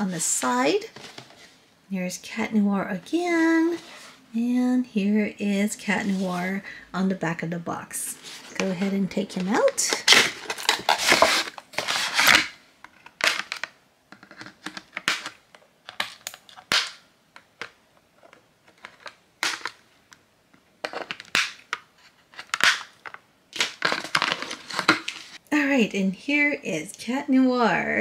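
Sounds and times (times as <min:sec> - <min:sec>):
packaging crinkling and scraping: 0:08.1 - 0:20.2, 0:20.8 - 0:25.4.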